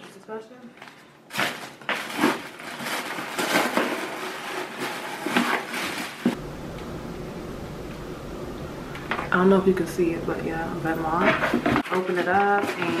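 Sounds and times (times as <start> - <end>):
paper and cardboard rustling: 0.0 - 6.4, 11.0 - 13.0
steady low hum: 6.2 - 11.8.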